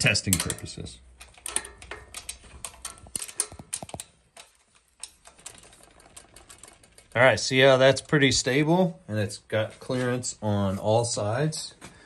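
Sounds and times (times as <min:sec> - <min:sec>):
wrench clicking on nut: 0:00.2 - 0:07.0.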